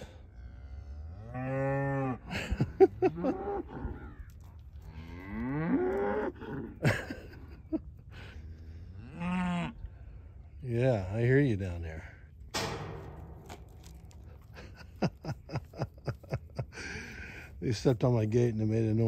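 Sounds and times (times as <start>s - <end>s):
cattle mooing: 3.0s - 6.8s, 8.6s - 9.9s
sharp knocks: 12.6s - 14.4s.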